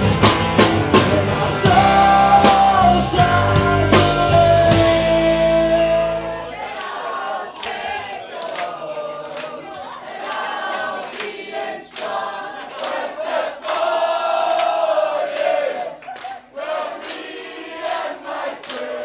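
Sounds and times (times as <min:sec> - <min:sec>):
live band chord: 0:00.0 - 0:06.6
crowd singing along: 0:00.0 - 0:19.0.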